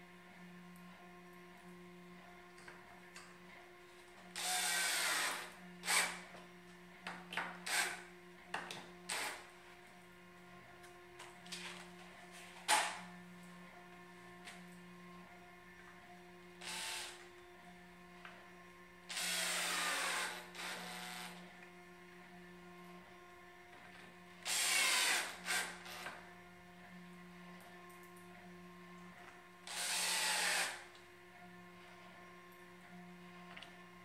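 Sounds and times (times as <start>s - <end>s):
cordless drill driving screws: 4.4s - 6.2s, 7.6s - 8.0s, 9.1s - 9.4s, 16.6s - 17.2s, 19.1s - 21.4s, 24.4s - 26.1s, 29.7s - 30.8s
drill trigger blips: 29.7s - 30.8s.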